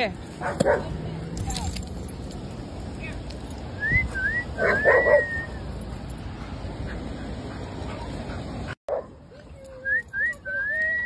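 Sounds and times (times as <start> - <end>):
outdoor background noise: 0.0 - 11.0
dog barking: 0.4 - 0.9, 4.6 - 5.3, 8.9 - 9.2.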